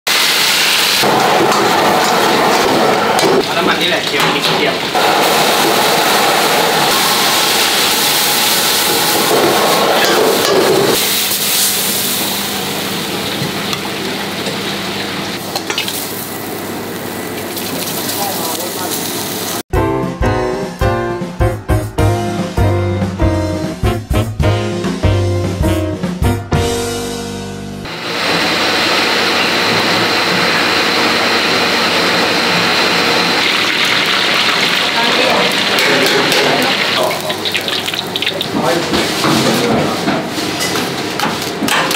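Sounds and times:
meat sizzling in a wok: 0.1 - 1.1, 11.0 - 19.6, 27.9 - 38.6
music: 19.7 - 27.9.

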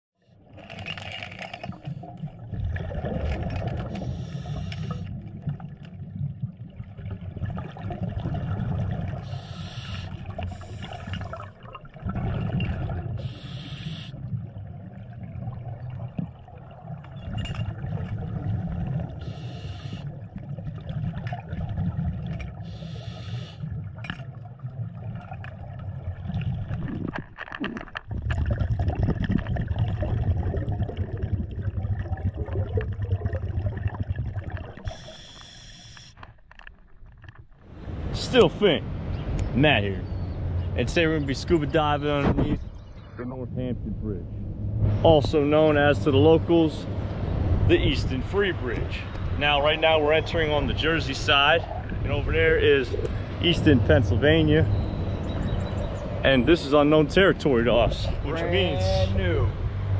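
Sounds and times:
low underwater rumble: 1.8 - 9.3, 10.2 - 13.4, 14.1 - 22.8, 23.6 - 35.1, 36.4 - 59.9
regulator bubbles hissing: 2.0 - 36.2.

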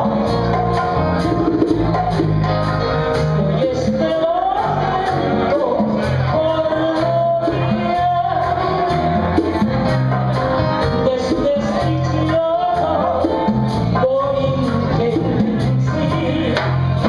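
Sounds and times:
drums with cymbals: 0.0 - 17.0
electric bass: 0.0 - 17.0
piano: 0.0 - 17.0
woman singing into a microphone: 3.5 - 9.2, 10.9 - 16.9.

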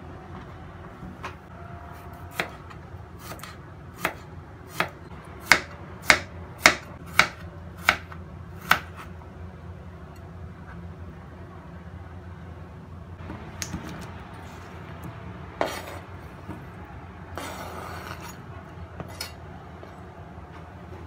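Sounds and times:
knife slicing on cutting board: 15.6 - 16.1, 17.4 - 18.4.

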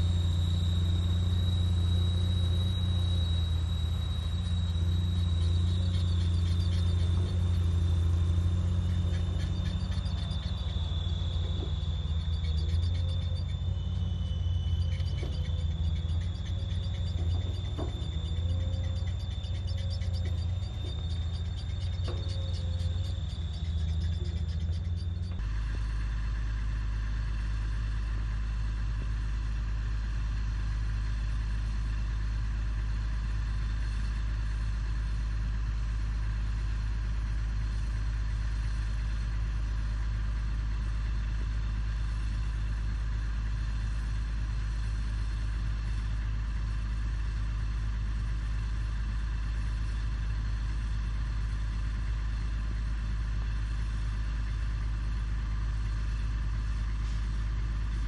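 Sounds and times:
thin steady tone: 0.0 - 25.4
heavy diesel engine drone: 0.0 - 58.0.

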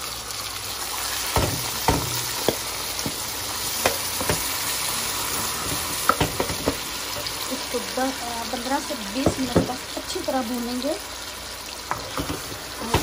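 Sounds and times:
meat sizzling in hot oil: 0.0 - 13.0
wooden spoon knocking and scraping pot: 1.3 - 4.5, 5.7 - 7.3, 9.1 - 9.9, 11.9 - 13.0.

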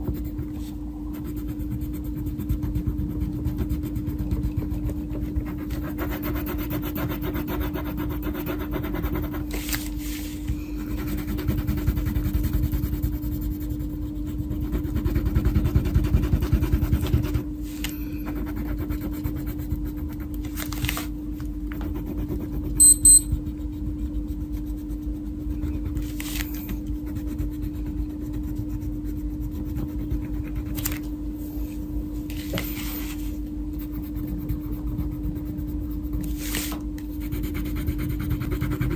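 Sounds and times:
crayon rubbing on paper: 0.0 - 17.4, 18.2 - 20.4, 32.9 - 38.9
steady low hum: 0.0 - 38.9
short high beeps: 22.8 - 23.3.

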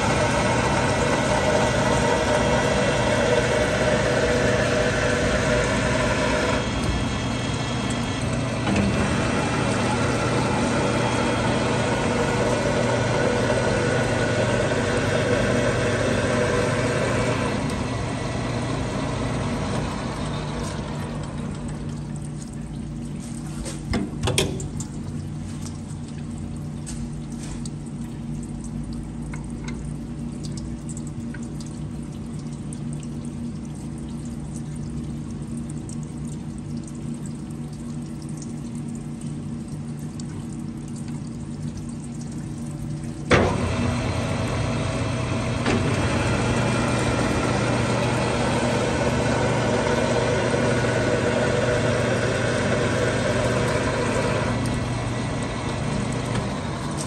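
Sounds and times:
coolant pouring: 0.0 - 57.0
steady machine hum: 0.0 - 57.0
lathe cutting thread: 43.3 - 57.0.

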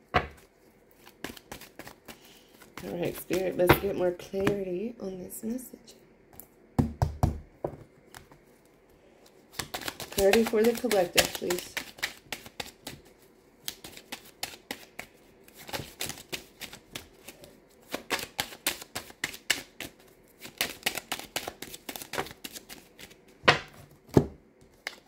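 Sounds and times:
cards being shuffled: 0.2 - 4.6, 8.1 - 23.2.

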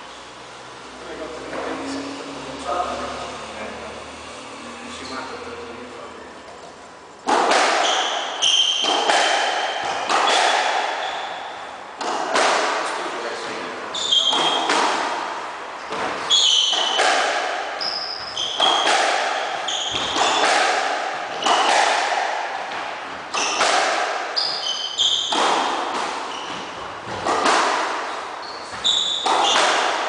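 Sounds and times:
squash ball hits: 7.2 - 13.0, 14.0 - 30.0
sneakers squeaking on wooden floor: 7.5 - 12.3, 13.9 - 15.1, 15.7 - 30.0.

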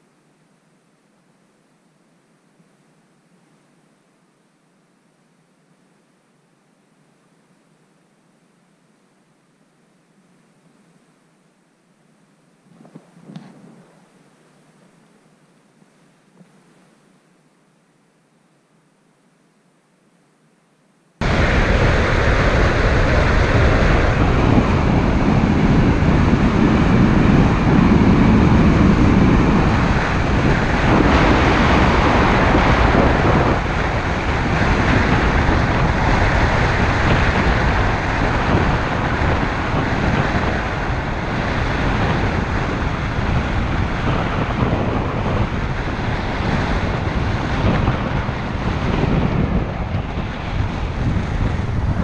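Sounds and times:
wind rushing over microphone: 12.7 - 14.3, 21.2 - 52.0.

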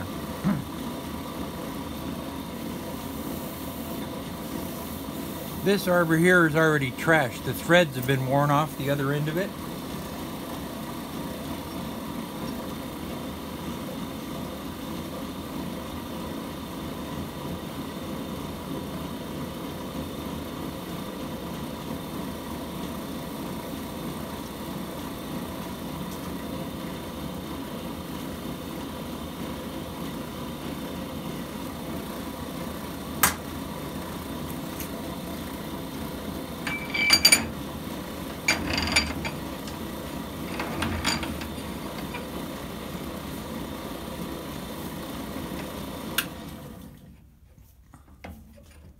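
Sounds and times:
low machine hum: 0.0 - 15.4, 21.5 - 47.2
metallic clinks and knocks: 36.6 - 37.6, 38.4 - 39.8, 40.5 - 41.5.

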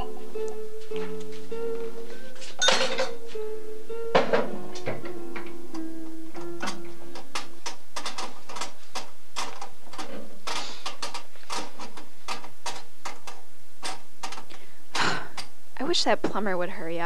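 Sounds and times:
kitchen sink clanking and rattling: 2.6 - 3.2.

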